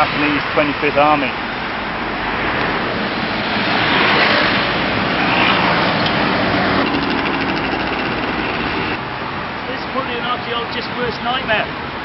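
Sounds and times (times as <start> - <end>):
cars passing: 0.0 - 12.0
motorcycle passing: 3.3 - 9.0.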